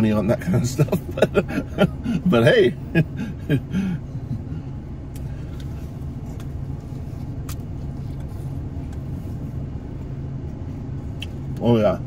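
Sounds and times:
car cabin hum: 0:00.0 - 0:12.0.

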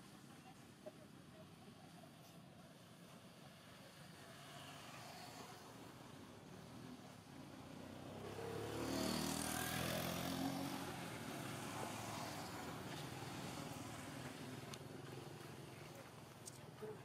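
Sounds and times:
vehicle passing by: 0:04.2 - 0:16.2.

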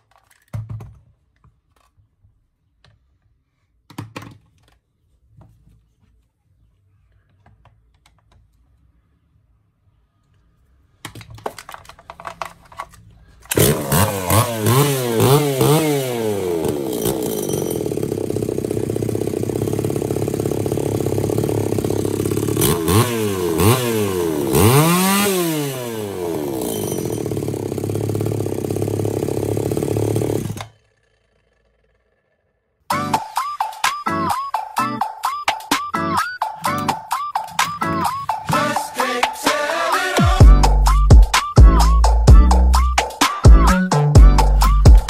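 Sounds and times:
chainsaw engine revving: 0:13.5 - 0:32.5.

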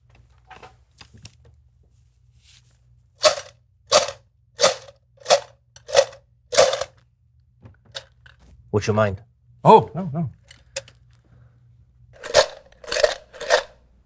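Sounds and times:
tin can of pens rattling: 0:03.2 - 0:07.0, 0:12.2 - 0:13.8.

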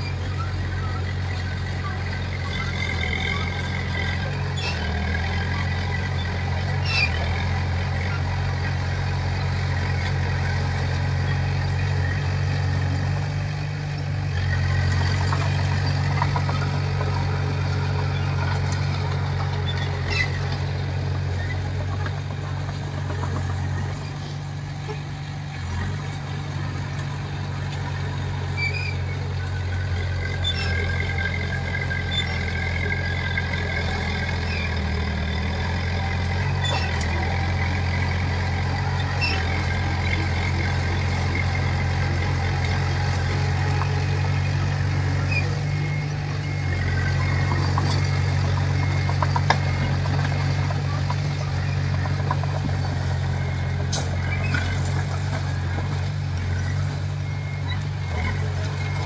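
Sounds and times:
bulldozer diesel engine droning: 0:00.0 - 0:59.0.

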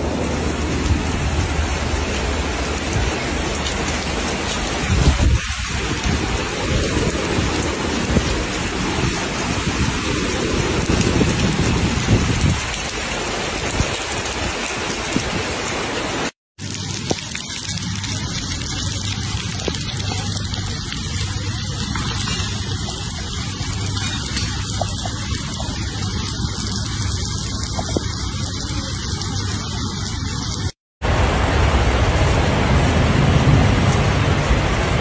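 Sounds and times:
low rumbles: 0:00.0 - 0:12.8, 0:30.0 - 0:35.0
heavy rain on paving and rooftops: 0:00.0 - 0:35.0.

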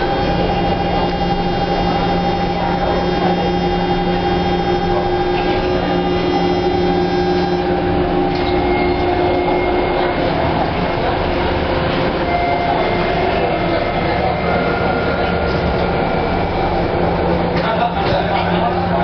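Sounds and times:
subway car wheels rumbling: 0:00.0 - 0:19.0.

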